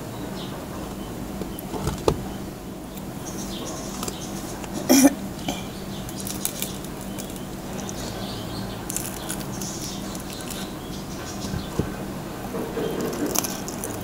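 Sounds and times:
close-up chewing: 0:02.9 - 0:14.0
crispy skin crackling: 0:05.4 - 0:08.2, 0:08.8 - 0:11.8, 0:13.0 - 0:14.0.

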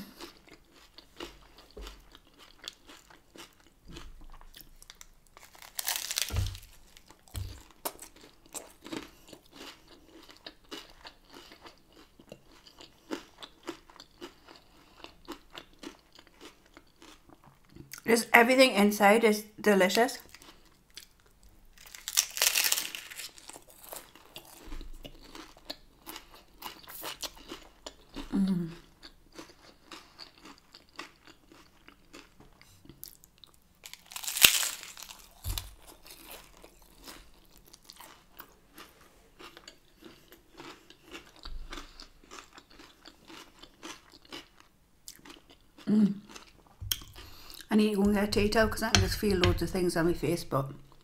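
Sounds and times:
chewing with small crunches: 0:00.0 - 0:18.1, 0:20.2 - 0:49.2
crunchy bite into tortilla: 0:05.0 - 0:08.0, 0:21.8 - 0:25.5, 0:33.8 - 0:38.2.

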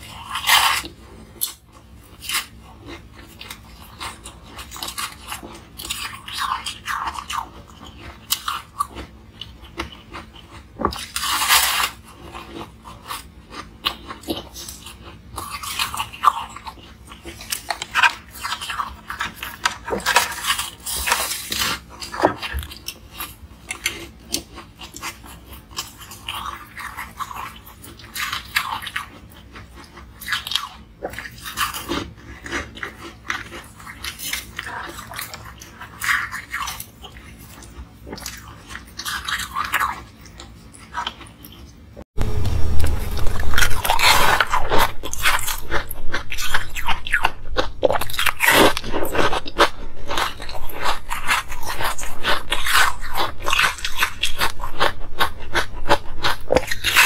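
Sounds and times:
chewing: 0:00.0 - 0:42.0, 0:43.0 - 0:57.0.

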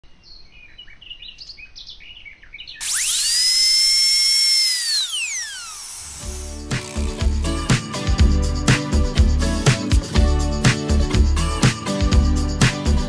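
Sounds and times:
birds chirping: 0:00.0 - 0:03.4
dental drill whining: 0:02.8 - 0:07.4.

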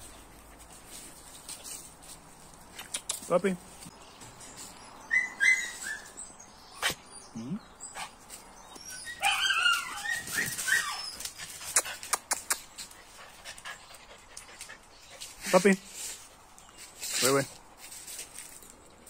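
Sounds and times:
small dogs whining and yipping: 0:05.0 - 0:06.9, 0:08.8 - 0:11.7.

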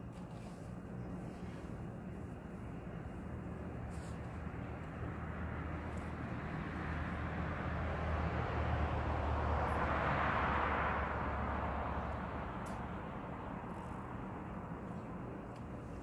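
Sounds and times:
passing engine rumble: 0:04.2 - 0:15.5.

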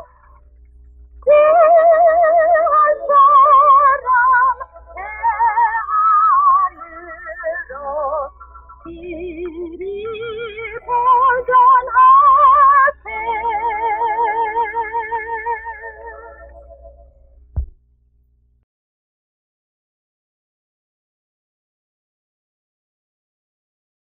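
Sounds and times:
slow melody with vibrato: 0:01.2 - 0:17.3.

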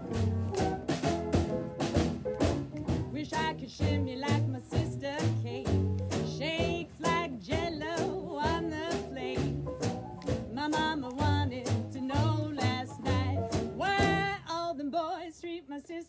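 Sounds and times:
double bass: 0:00.0 - 0:14.4
drum kit beat: 0:00.0 - 0:14.4
piano: 0:00.0 - 0:14.6
woman singing with vibrato: 0:03.1 - 0:09.6, 0:10.5 - 0:16.0.

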